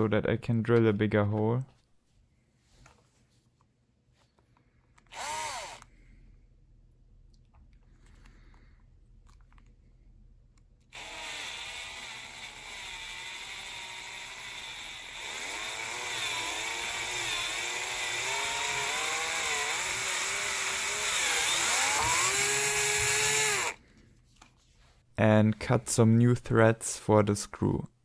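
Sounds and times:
cordless drill boring metal: 5.1s - 5.9s, 10.8s - 23.8s.

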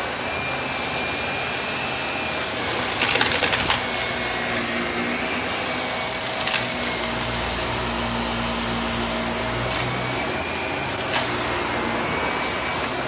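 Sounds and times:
vacuum cleaner running: 0.0s - 13.0s
debris crackling and rattling: 2.4s - 4.8s, 6.1s - 7.4s, 9.6s - 12.9s.

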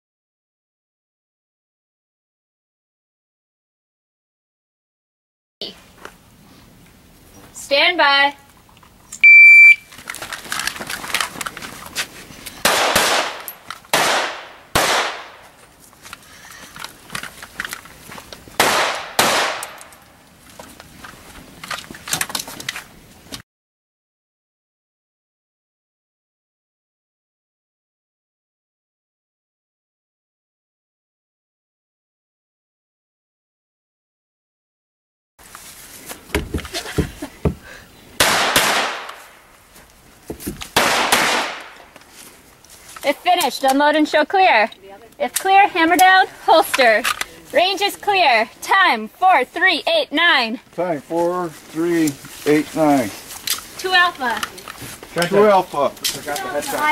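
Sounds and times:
handgun shots with echo: 12.6s - 15.4s, 18.6s - 20.0s, 38.2s - 39.2s, 40.8s - 41.8s.

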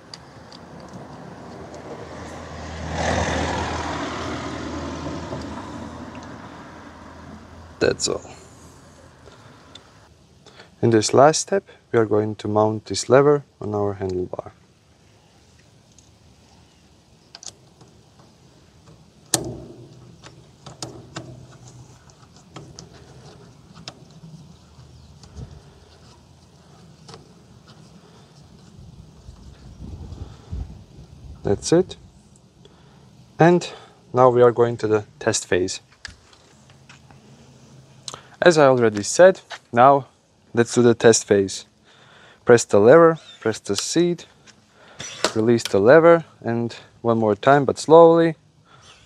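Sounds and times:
vehicle passing with engine drone: 0.0s - 10.1s, 36.4s - 38.4s.

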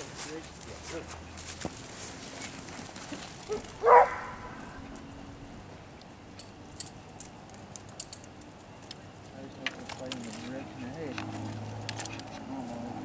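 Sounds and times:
faint clicks and rustles: 0.0s - 12.9s
dog barking: 3.5s - 4.6s.

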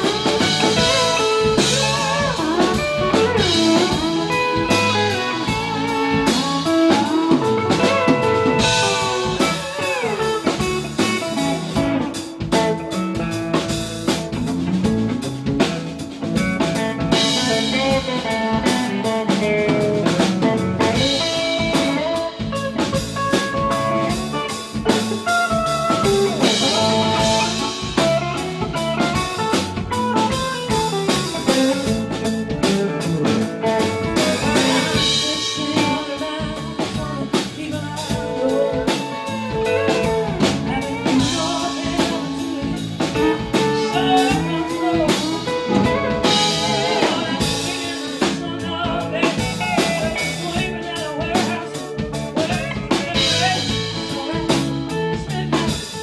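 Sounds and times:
live band playing: 0.0s - 56.0s
woman singing: 17.1s - 25.0s, 25.7s - 28.2s, 33.7s - 56.0s.

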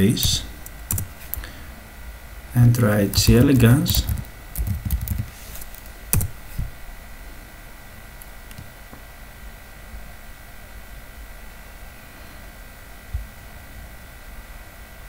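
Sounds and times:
faint steady hum: 0.0s - 15.0s
typing on computer keyboard: 0.2s - 1.1s, 3.2s - 5.3s.

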